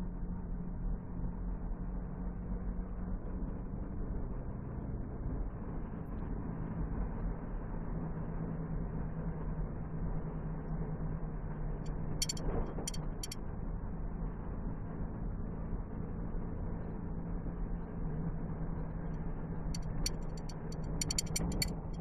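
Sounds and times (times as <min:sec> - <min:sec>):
car engine and road noise: 0:00.0 - 0:22.0
low hum: 0:04.9 - 0:22.0
short sharp clicks: 0:19.8 - 0:21.9.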